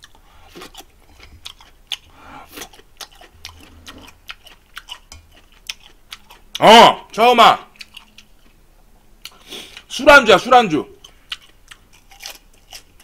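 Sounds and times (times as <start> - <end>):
chewing with wet clicks and crunches: 0.0 - 6.7, 7.7 - 8.6, 9.2 - 9.9, 11.0 - 13.0.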